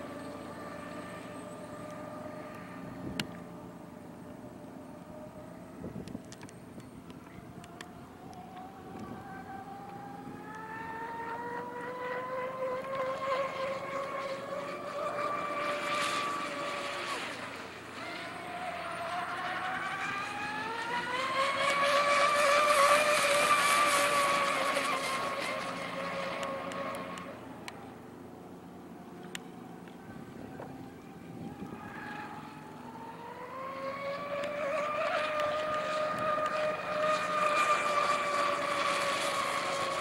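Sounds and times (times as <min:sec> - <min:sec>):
electric boat motors whining: 0:00.0 - 0:40.0.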